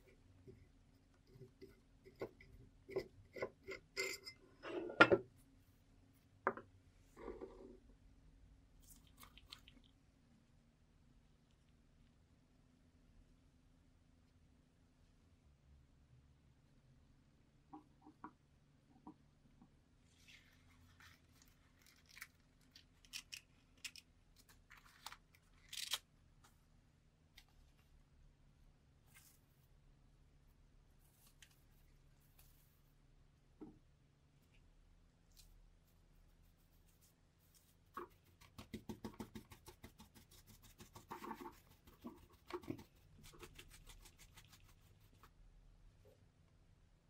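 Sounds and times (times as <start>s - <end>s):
paintbrush scratchy strokes: 30.5s - 33.1s, 35.3s - 45.4s.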